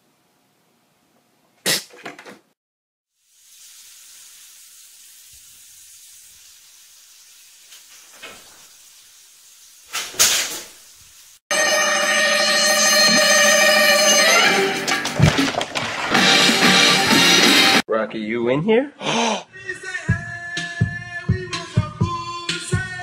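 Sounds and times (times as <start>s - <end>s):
faint steady hiss: 3.2s - 11.4s.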